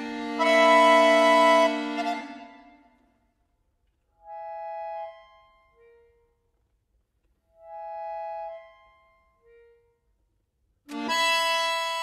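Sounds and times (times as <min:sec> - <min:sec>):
accordion phrases: 0:00.0 - 0:02.9, 0:10.9 - 0:12.0.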